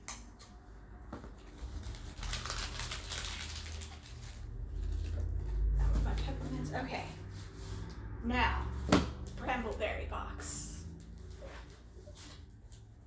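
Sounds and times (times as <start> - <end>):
packing tape tearing: 1.6 - 5.2.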